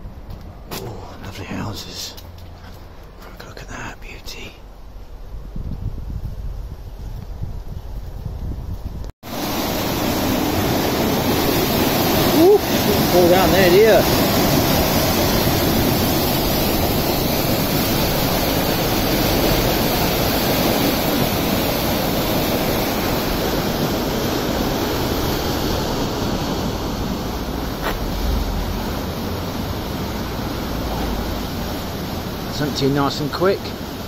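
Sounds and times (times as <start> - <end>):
water rushing through sluices: 9.2 - 34.0.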